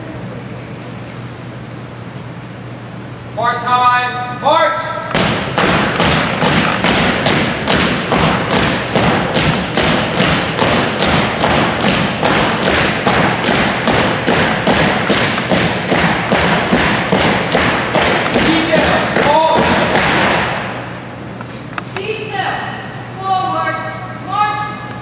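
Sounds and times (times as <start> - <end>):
marching footsteps on hardwood floor: 5.1 - 20.8.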